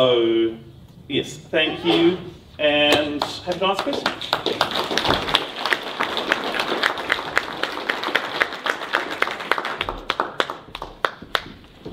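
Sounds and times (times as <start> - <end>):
audience applauding: 3.2 - 11.6.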